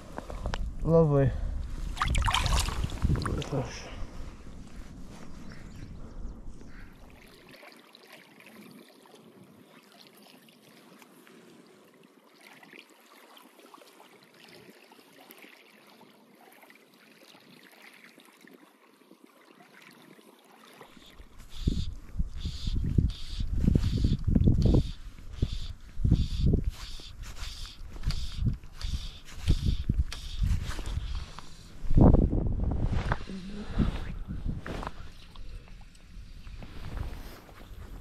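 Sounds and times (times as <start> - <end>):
wind buffeting microphone: 0.0 - 7.2, 21.2 - 38.0
water lapping on stony shore: 1.6 - 5.8, 6.6 - 22.2.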